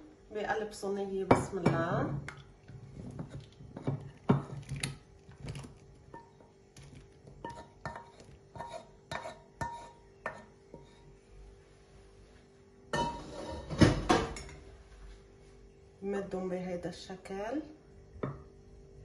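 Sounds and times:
pot and dish clattering: 12.9 - 14.6.

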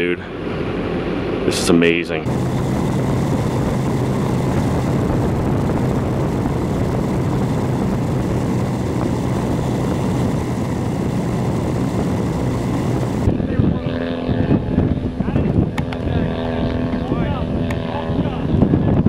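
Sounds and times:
model airplane engine and propeller: 0.3 - 19.0
steady rushing noise: 2.2 - 13.5.

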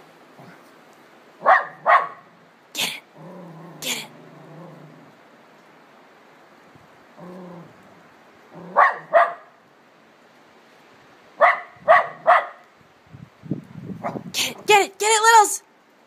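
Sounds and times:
puppy barking: 1.4 - 2.3, 8.6 - 9.6, 11.4 - 12.6.

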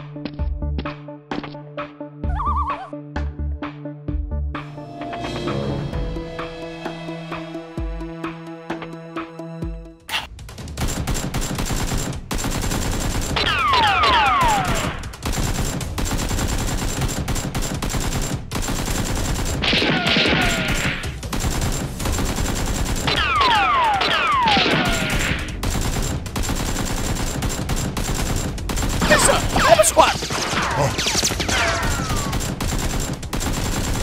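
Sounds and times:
rapid automatic gunfire: 10.6 - 34.0.

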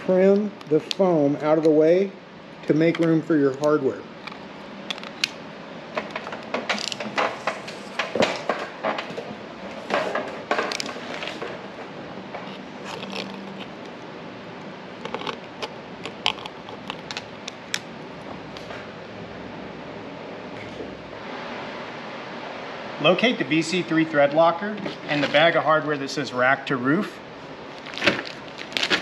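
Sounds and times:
handling noise: 2.8 - 18.9, 27.7 - 29.0.

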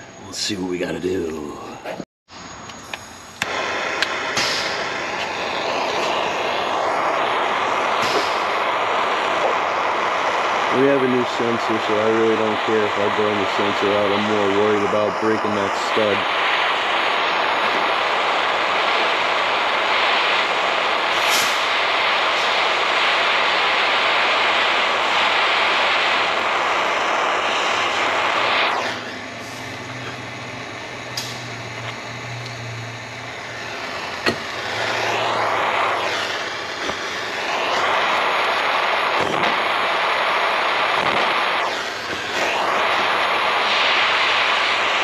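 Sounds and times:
gas torch hissing: 0.0 - 45.0
sharp click: 2.7 - 5.3, 31.1 - 32.6.

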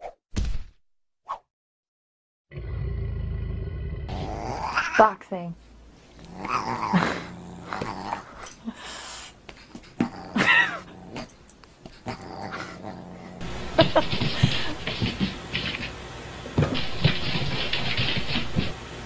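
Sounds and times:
dog growling: 2.5 - 5.1, 6.1 - 8.8, 9.8 - 15.9.

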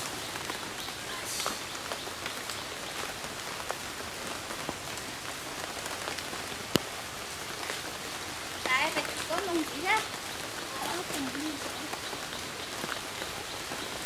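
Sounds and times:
raindrop ticks: 0.0 - 14.0
steady rain hiss: 0.0 - 14.0.

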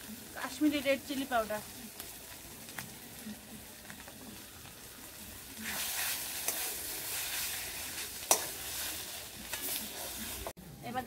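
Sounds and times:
onions sizzling in oil: 0.0 - 11.0
spatula scraping a pan: 5.4 - 10.6
spatula clinking against pan: 8.3 - 8.6.

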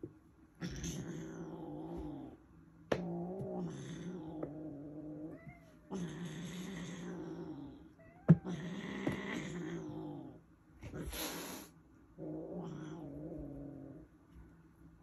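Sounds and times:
kittens yowling growls: 0.6 - 10.4, 12.2 - 14.1
kitten hissing: 11.0 - 11.7.

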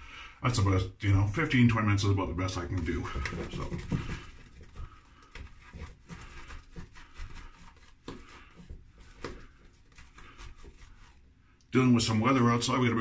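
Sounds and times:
razor rubbing strokes on face: 4.7 - 11.3.

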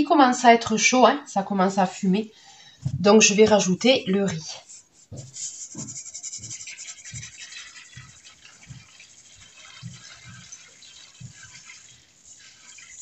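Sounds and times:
soft low thuds: 2.8 - 3.7
rice grains pattering into a saucepan: 5.6 - 13.0.

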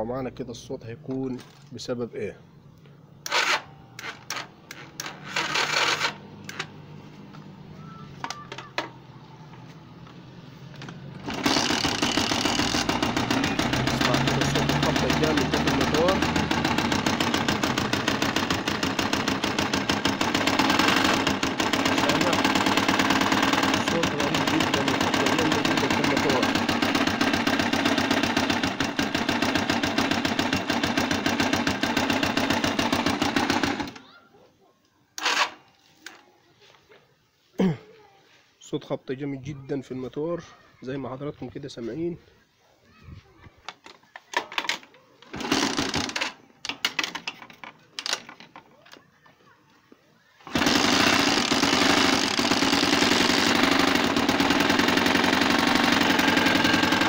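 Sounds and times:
motorcycle engine hum: 6.2 - 33.1
engine hard rapid knocking: 11.2 - 34.0, 50.5 - 57.0.

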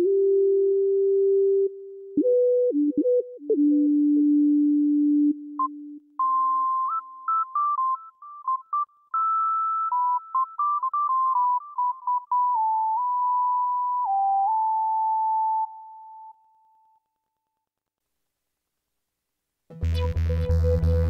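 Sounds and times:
synthesizer whistle-like melody: 5.6 - 16.4.

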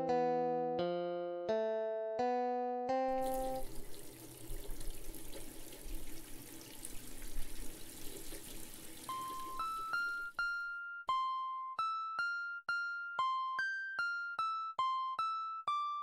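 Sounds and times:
water running into metal pot: 3.1 - 10.4.

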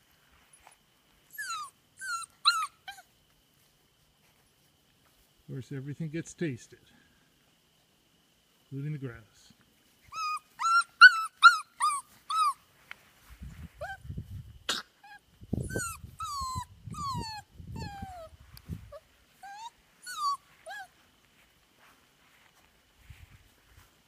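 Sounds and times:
puppies whining and yelping: 0.6 - 3.1, 10.1 - 12.6, 13.8 - 14.0, 15.0 - 20.9.

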